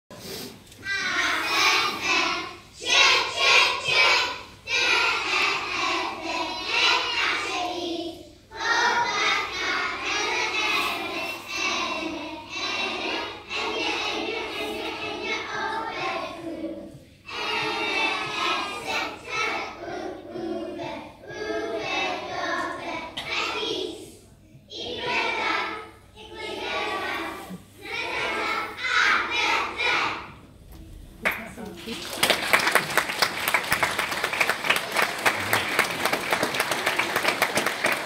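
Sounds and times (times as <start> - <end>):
children singing in unison: 0.8 - 30.5.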